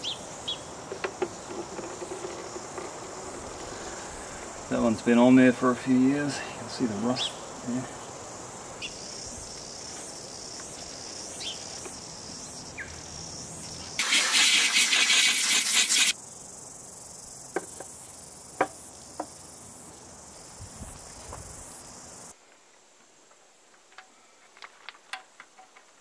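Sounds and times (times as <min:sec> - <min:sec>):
insects chirring: 0:00.0 - 0:26.0
loud high buzzing hiss: 0:13.3 - 0:16.2.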